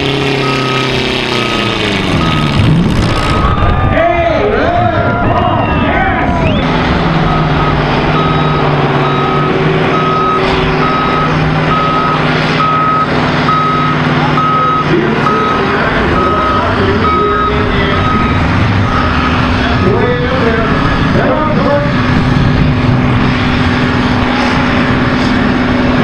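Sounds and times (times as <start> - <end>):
diesel tractor engine idling: 0.0 - 26.0
backup alarm beeping: 3.2 - 3.8, 7.2 - 20.2.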